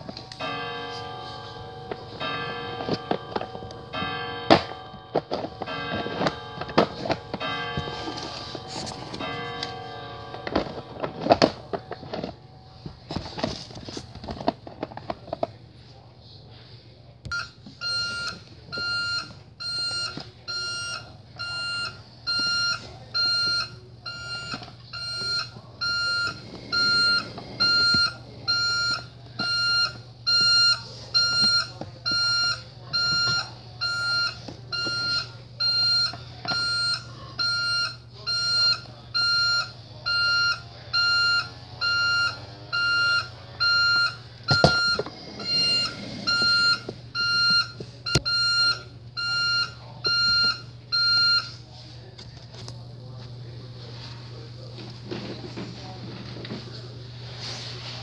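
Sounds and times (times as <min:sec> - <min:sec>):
toy truck high beeps: 0:17.3 - 0:51.5.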